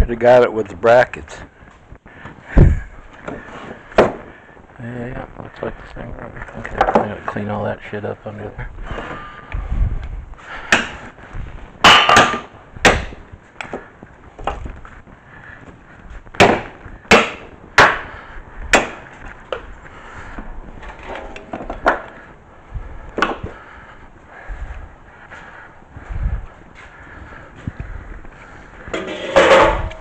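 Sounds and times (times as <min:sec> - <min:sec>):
metal knocks and clanks: 0:28.9 - 0:30.0
metallic ring: 0:29.0 - 0:30.0.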